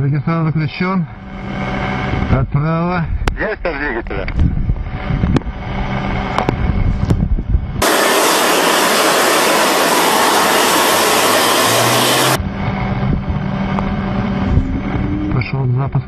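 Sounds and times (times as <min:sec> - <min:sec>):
jet engine rushing hiss: 0:07.8 - 0:12.4.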